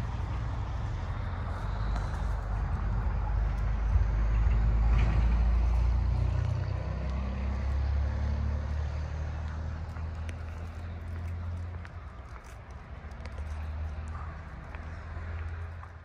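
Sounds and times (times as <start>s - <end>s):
vehicle engine rumble passing: 0.0s - 16.0s.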